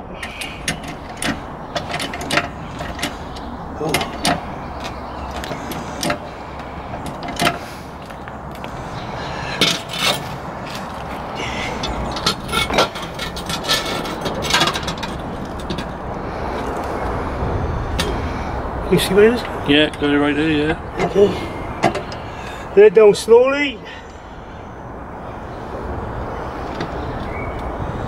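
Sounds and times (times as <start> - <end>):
metal clicks and clanks: 0.2 - 6.2, 6.9 - 7.6, 9.6 - 11.0, 11.8 - 16.0.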